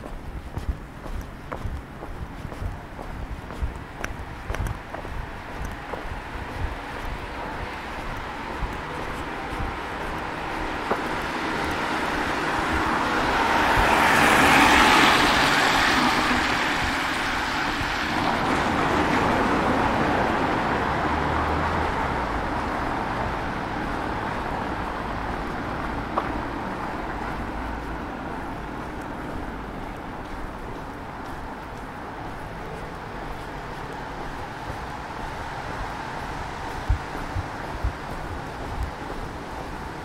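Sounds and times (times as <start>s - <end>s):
background traffic: 0.0s - 40.0s
car tyres hissing on wet road: 10.4s - 25.9s.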